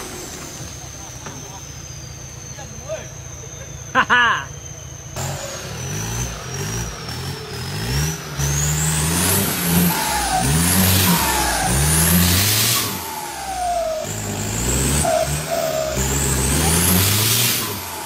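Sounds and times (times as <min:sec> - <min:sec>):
diesel truck engine revving: 0:00.0 - 0:18.0
high whine: 0:09.0 - 0:18.0.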